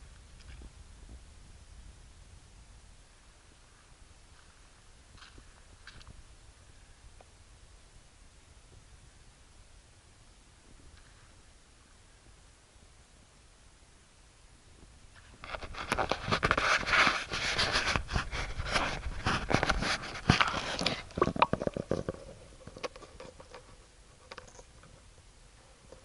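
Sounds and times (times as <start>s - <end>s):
camera knocking and scraping: 15.4s - 25.0s.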